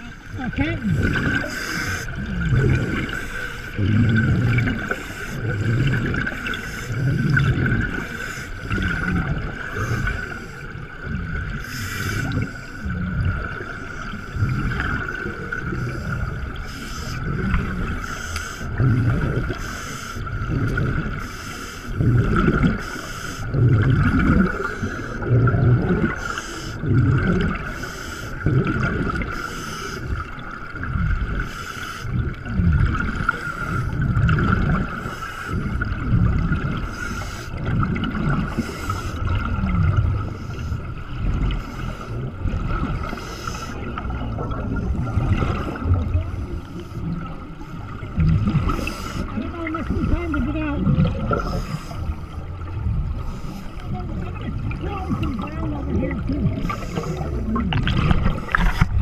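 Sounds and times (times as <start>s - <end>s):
exhaled bubbles gurgling: 0.0s - 59.0s
hissy regulator inhalations: 1.0s - 2.2s, 17.9s - 20.4s, 21.1s - 22.1s, 22.8s - 23.6s, 27.6s - 28.4s, 29.2s - 30.2s, 31.4s - 32.2s, 38.5s - 39.3s, 43.0s - 44.0s, 51.3s - 52.5s, 53.2s - 53.9s.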